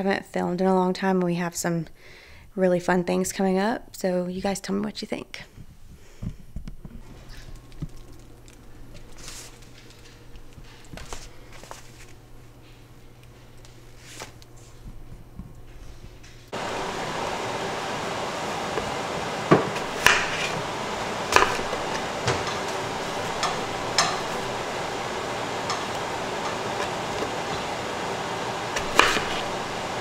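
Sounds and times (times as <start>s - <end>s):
steady hiss: 16.5s - 30.0s
hard objects knocking and clinking: 21.4s - 24.9s.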